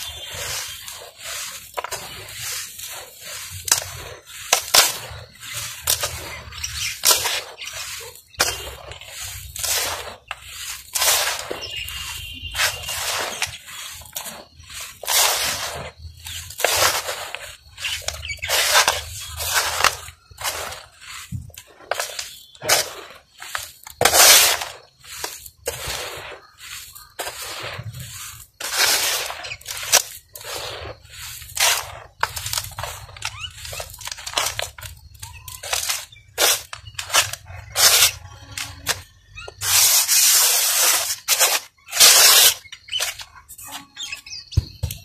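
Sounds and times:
soil falling into plastic tub: 0:00.0 - 0:43.6
stony soil crunching and rustling: 0:00.0 - 0:45.0.

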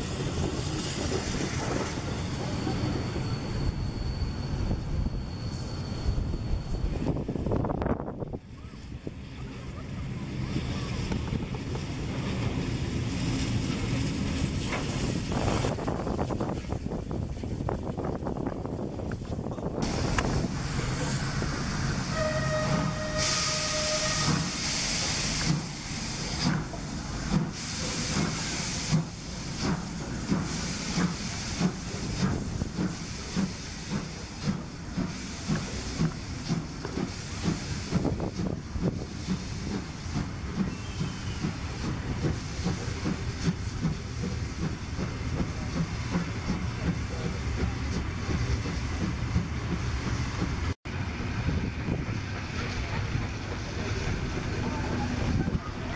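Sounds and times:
locomotive exhaust chuffs: 0:19.8 - 0:50.8
steam hissing: 0:19.8 - 0:50.8
steam locomotive whistle: 0:22.0 - 0:24.9.

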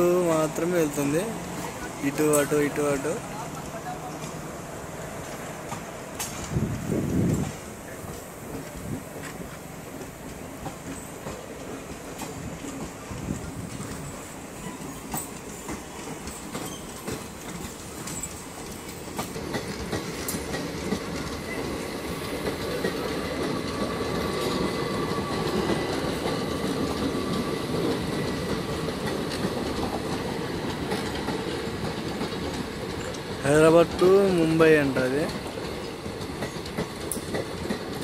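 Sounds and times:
wheels clacking over rail joints: 0:00.0 - 0:04.5, 0:05.1 - 0:38.0
train rumbling past: 0:00.0 - 0:38.0.

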